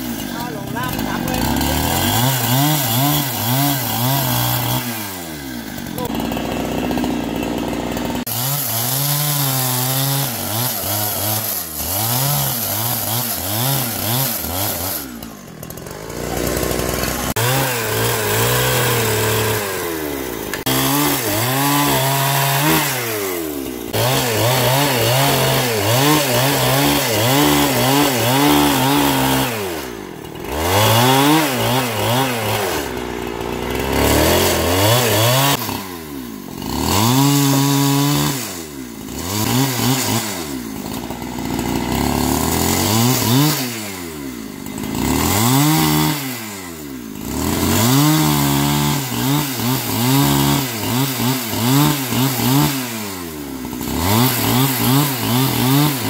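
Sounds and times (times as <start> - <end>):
chainsaw cutting logs: 0.0 - 56.0.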